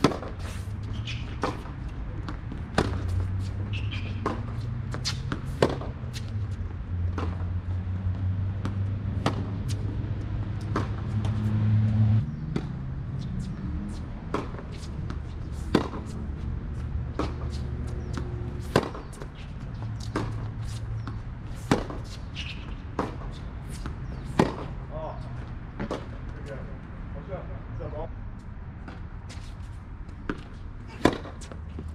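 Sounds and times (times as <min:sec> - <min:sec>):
rackets striking tennis ball: 0:00.0 - 0:07.6, 0:08.5 - 0:11.6, 0:12.3 - 0:12.8, 0:14.2 - 0:26.6, 0:28.8 - 0:31.9
tennis ball bouncing: 0:00.0 - 0:26.4, 0:28.8 - 0:31.9.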